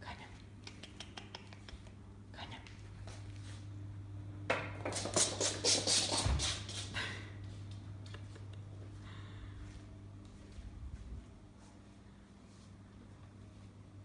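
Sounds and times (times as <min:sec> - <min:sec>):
kitten claws clicking on floor: 0:00.6 - 0:02.0.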